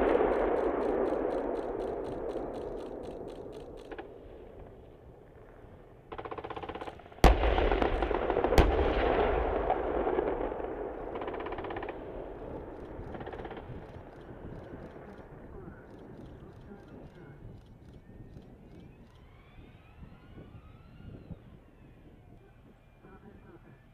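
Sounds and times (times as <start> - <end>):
machine-gun fire bursts: 0.0 - 4.0, 6.1 - 15.0
loud cannon shots: 0.0 - 14.5.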